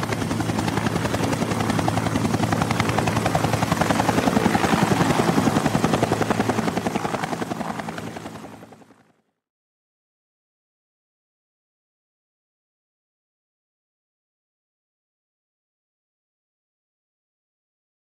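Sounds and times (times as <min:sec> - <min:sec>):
helicopter engine noise: 0:00.0 - 0:09.1
helicopter rotor beating: 0:00.0 - 0:09.1.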